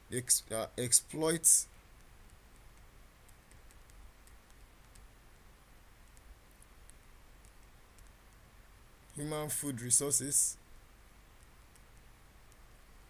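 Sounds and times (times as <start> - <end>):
faint sharp clicks: 6.0 - 8.4, 11.4 - 12.7.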